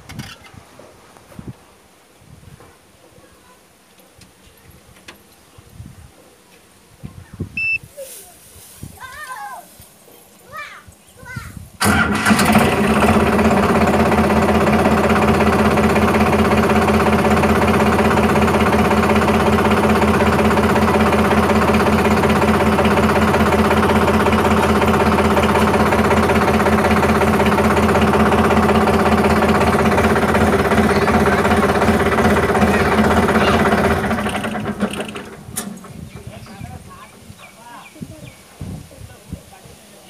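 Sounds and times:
tractor diesel engine idling: 11.8s - 37.1s.

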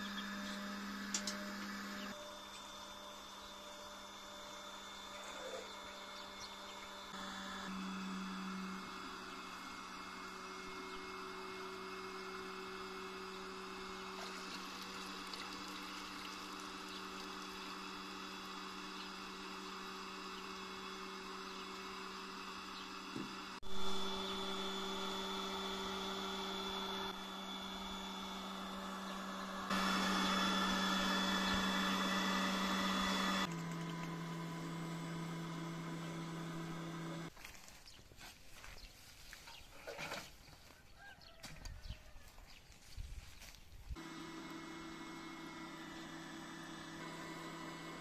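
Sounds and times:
electric motor humming: 0.0s - 37.3s, 44.0s - 48.0s.

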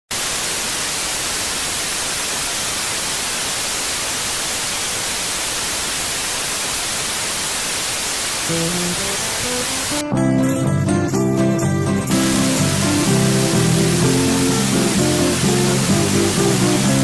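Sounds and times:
loud static hiss: 0.1s - 10.1s, 11.4s - 17.0s
musical notes: 8.5s - 17.0s.

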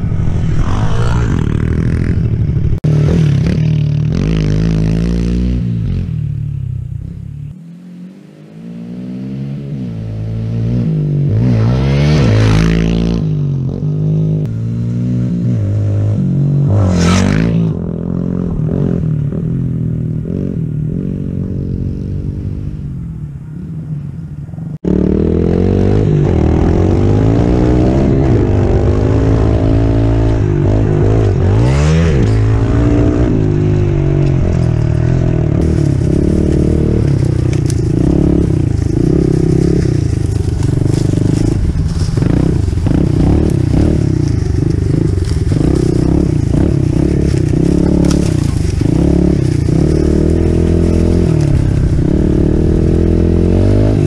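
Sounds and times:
motorbike engine riding away: 24.9s - 54.0s
small motorbike engine revving: 35.6s - 54.0s.

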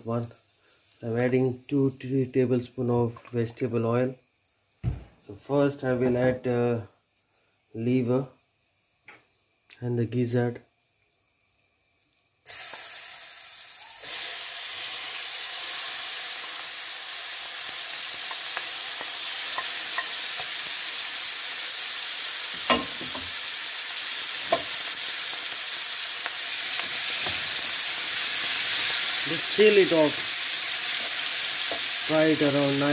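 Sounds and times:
meat sizzling in oil: 0.0s - 2.1s, 12.5s - 32.9s
wooden spatula knocking pan: 22.6s - 23.4s.

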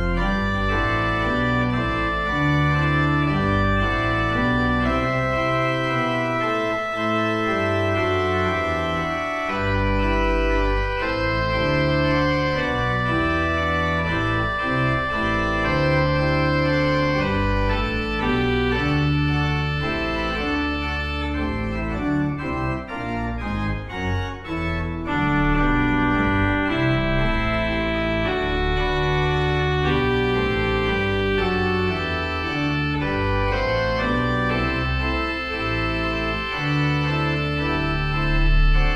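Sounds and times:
church organ chords: 0.0s - 38.9s.

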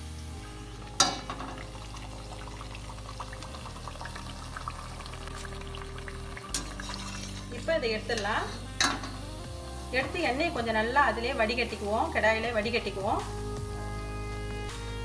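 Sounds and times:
oil bubbling and sizzling: 0.0s - 10.7s.

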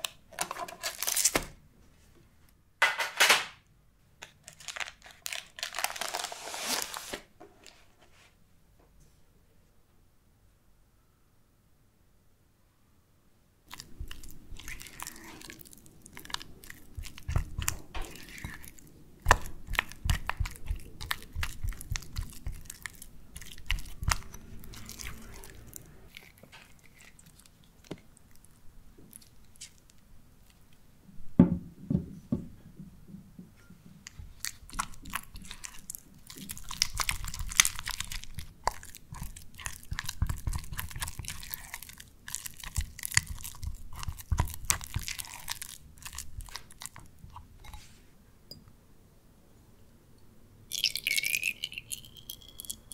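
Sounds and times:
spatula mashing cream cheese: 13.7s - 30.6s, 34.0s - 48.0s
spatula scraping glass bowl: 17.0s - 22.6s, 46.1s - 48.0s.

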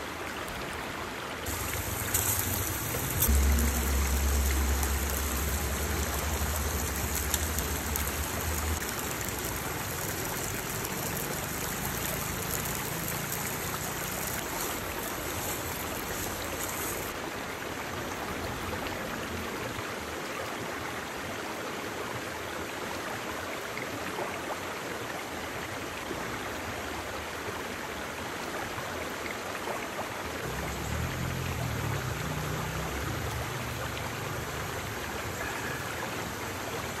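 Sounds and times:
water rushing over rocks: 1.4s - 18.6s, 30.4s - 37.0s
low rumble: 1.5s - 8.9s.

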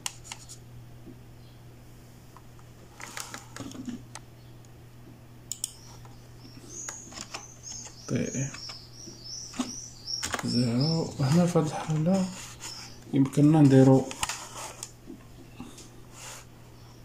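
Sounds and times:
keyboard clicks: 5.5s - 5.9s
faint bird chirps: 5.6s - 13.2s.

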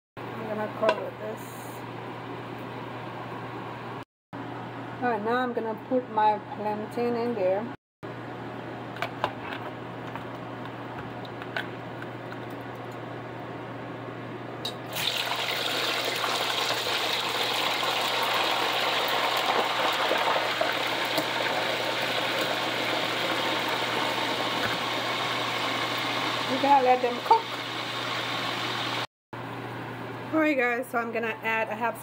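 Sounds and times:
oil sizzling in a pot: 14.9s - 29.1s.

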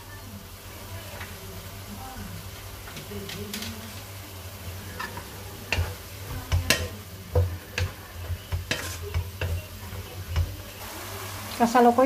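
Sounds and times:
utensil scraping against pan: 4.8s - 10.8s.

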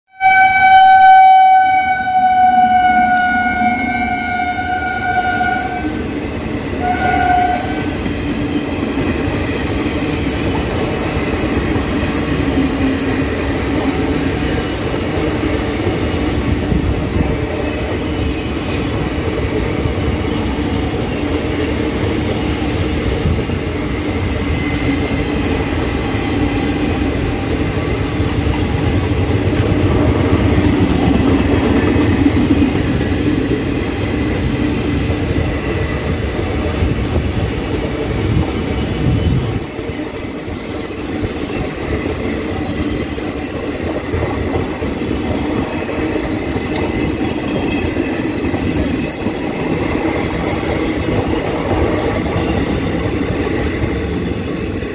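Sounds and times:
train horn blasts: 0.1s - 6.1s, 6.8s - 8.0s
train wheels rumbling on rail: 0.2s - 54.9s.

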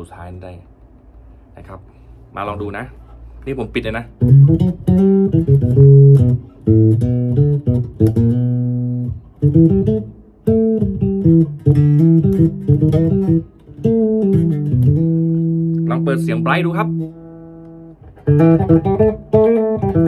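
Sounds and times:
dull plucked bass guitar notes: 4.1s - 20.0s.

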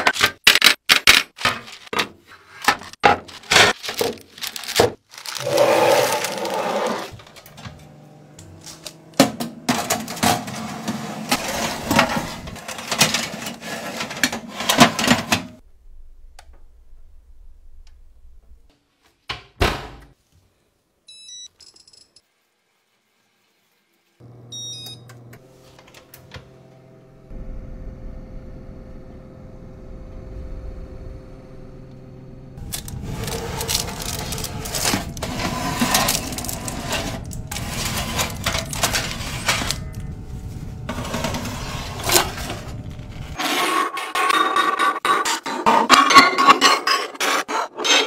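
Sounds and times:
oven humming: 5.4s - 15.3s, 24.2s - 43.4s
metal oven racks clattering: 9.2s - 15.6s, 32.9s - 40.1s
oven control panel beeps: 24.4s - 25.4s.

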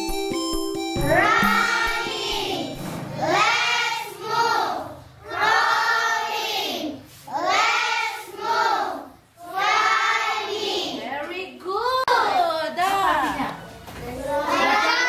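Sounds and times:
children singing: 1.1s - 11.0s, 14.3s - 15.0s.

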